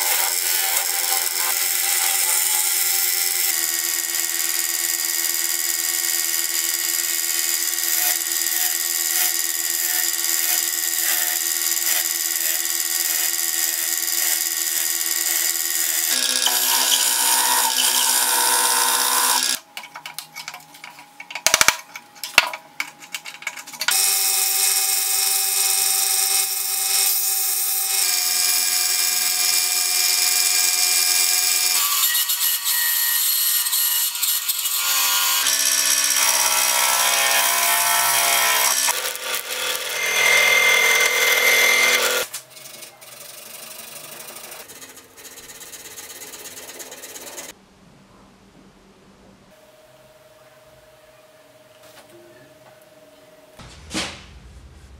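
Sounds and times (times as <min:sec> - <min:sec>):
bandsaw cutting wood: 0:00.0 - 0:19.6, 0:23.8 - 0:47.5
woodshop power tools running: 0:00.0 - 0:19.6, 0:23.9 - 0:47.5
sharp knocks: 0:53.6 - 0:54.9.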